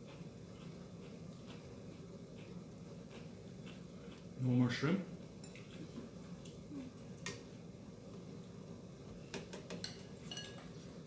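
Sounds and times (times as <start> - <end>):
low steady hum: 0.0 - 11.0
utensils clinking on ceramic dishes: 9.7 - 10.8.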